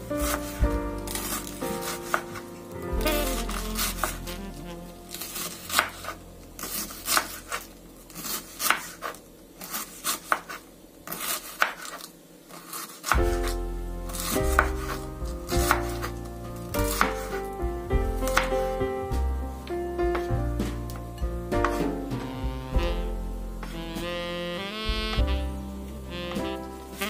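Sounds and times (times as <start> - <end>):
background music: 0.0 - 7.0, 13.2 - 27.0
knife slicing cabbage on board: 5.2 - 7.6, 8.2 - 13.6, 14.2 - 15.0.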